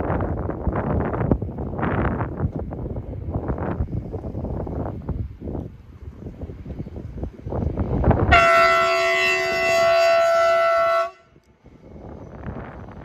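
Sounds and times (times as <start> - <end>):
train rumbling on track: 0.0 - 13.0
locomotive horn blast: 8.2 - 11.4.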